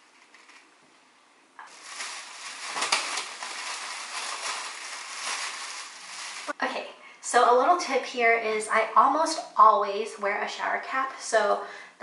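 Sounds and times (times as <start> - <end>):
plastic shower cap crinkling: 0.0 - 0.7, 1.6 - 6.6.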